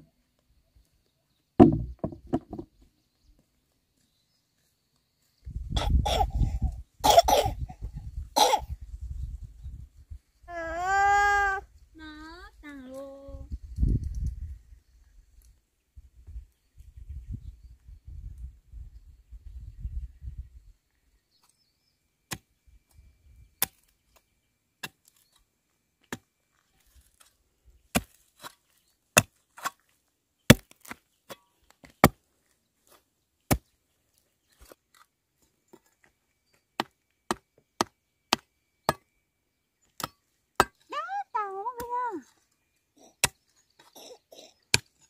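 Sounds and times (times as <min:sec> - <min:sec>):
wood being chopped: 0:01.6 - 0:02.7, 0:27.9 - 0:28.6, 0:30.5 - 0:32.2, 0:40.0 - 0:40.8.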